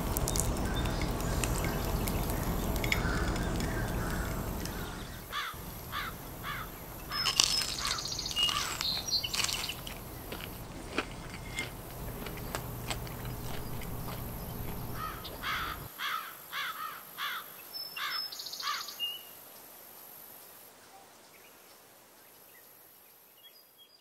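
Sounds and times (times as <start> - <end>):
low background rumble: 0.0 - 15.9
faint high insect whine: 0.2 - 10.8, 11.7 - 24.0
bird chirping: 0.3 - 10.8, 12.0 - 15.9.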